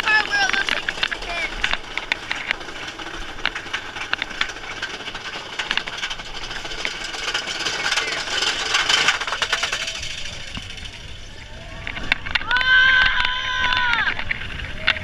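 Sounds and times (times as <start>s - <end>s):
roller coaster wheels clattering: 0.0s - 15.0s
riders crying out: 7.6s - 15.0s
wind rushing past microphone: 10.0s - 15.0s.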